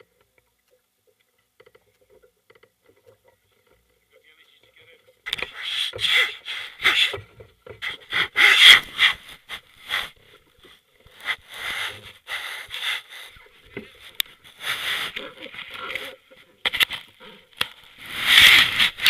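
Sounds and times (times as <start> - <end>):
rustling scraping on microphone: 7.8 - 19.0.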